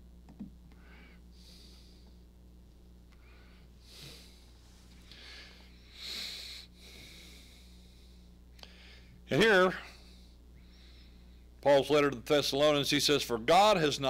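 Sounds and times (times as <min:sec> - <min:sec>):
low electrical hum: 0:00.0 - 0:14.0
man breathing: 0:00.7 - 0:02.3, 0:03.1 - 0:11.6.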